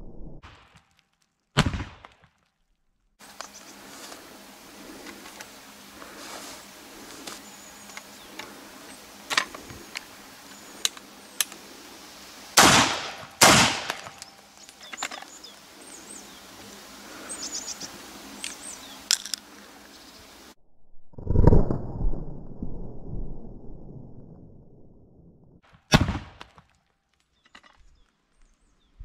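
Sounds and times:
shotgun blasts: 1.6s - 2.2s, 12.6s - 14.2s, 25.9s - 26.6s
metallic clicks of gun handling: 18.4s - 19.4s.

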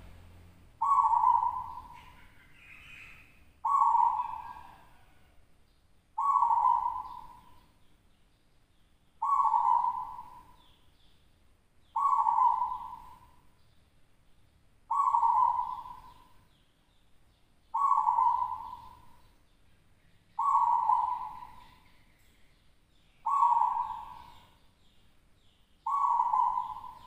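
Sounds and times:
dove cooing: 0.8s - 5.4s, 6.2s - 7.6s, 9.2s - 10.7s, 12.0s - 13.4s, 14.9s - 16.4s, 17.7s - 19.2s, 20.4s - 21.9s, 23.2s - 24.6s, 25.8s - 27.0s.

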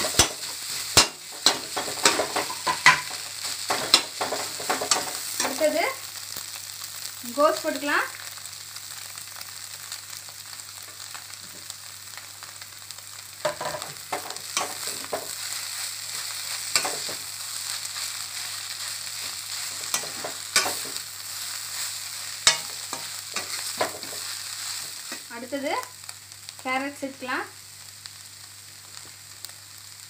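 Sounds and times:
food sizzling in hot oil: 0.0s - 30.0s
metal spatula scraping pan: 16.2s - 17.2s, 19.2s - 21.0s, 22.4s - 24.3s.

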